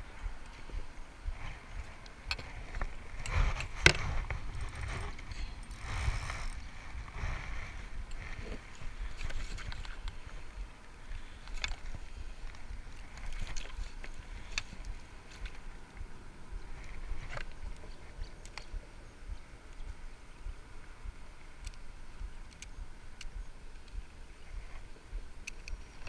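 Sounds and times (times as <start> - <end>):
low rumble: 0.0 - 25.4
clicks and knocks of handling gear: 1.8 - 6.6, 8.1 - 10.5, 11.1 - 15.7.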